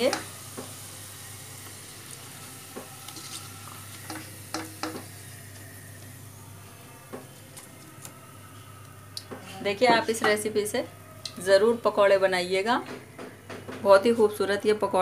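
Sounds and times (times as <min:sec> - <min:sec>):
oil sizzling in a wok: 0:00.0 - 0:07.3.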